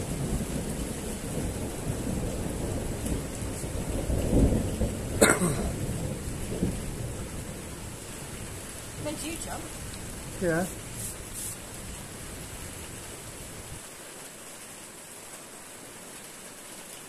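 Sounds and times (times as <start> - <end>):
thunder rumbling: 0.0 - 13.8
steady rain: 0.0 - 17.0
sharp thunder crack: 1.3 - 7.3.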